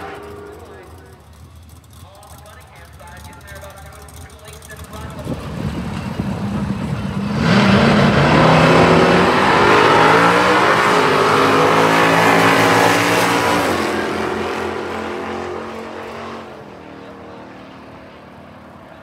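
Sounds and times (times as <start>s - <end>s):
drag racing cars accelerating: 0.0s - 19.0s.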